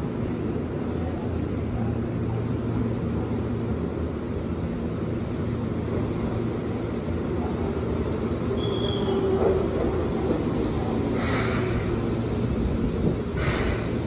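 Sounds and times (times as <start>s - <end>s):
electric train rumbling: 0.0s - 14.0s
high squeal: 8.6s - 9.3s.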